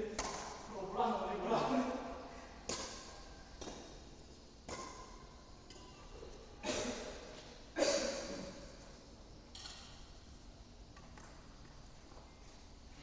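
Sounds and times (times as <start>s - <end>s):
rackets smacking shuttlecock: 0.1s - 0.7s, 2.6s - 6.0s.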